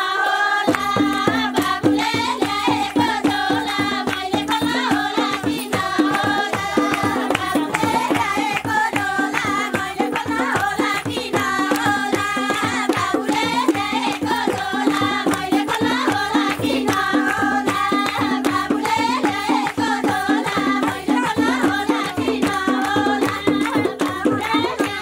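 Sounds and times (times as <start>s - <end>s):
person singing folk song: 0.0s - 25.0s
hand drum beat: 0.6s - 25.0s.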